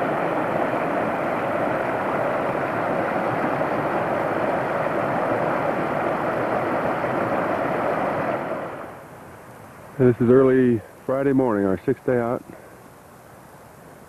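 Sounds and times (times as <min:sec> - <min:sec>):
water rushing over rocks: 0:00.0 - 0:09.0.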